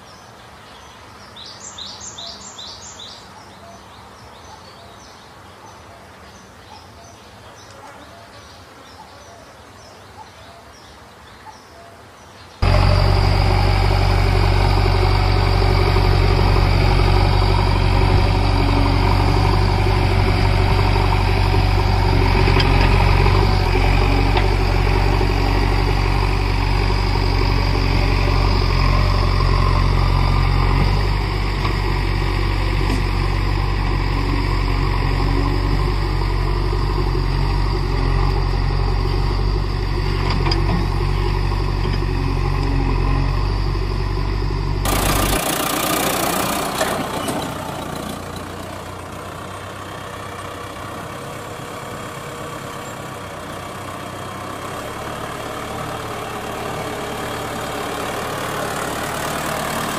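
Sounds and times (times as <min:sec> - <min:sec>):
heavy engine idling: 0:12.6 - 0:59.9.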